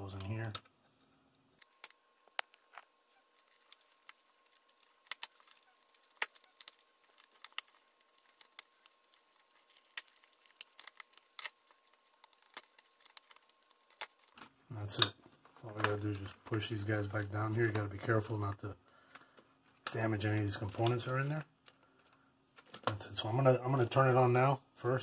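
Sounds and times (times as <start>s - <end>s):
plastic connectors clicking and rattling: 1.6s - 16.6s.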